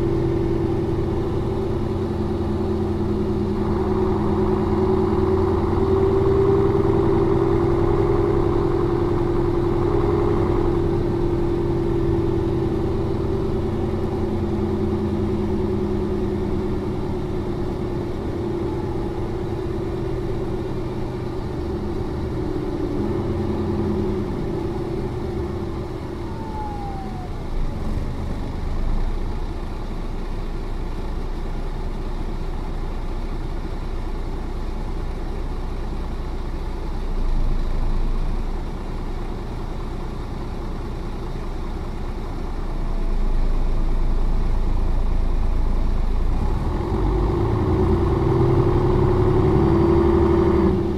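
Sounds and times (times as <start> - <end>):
bus diesel engine running: 0.0 - 50.9.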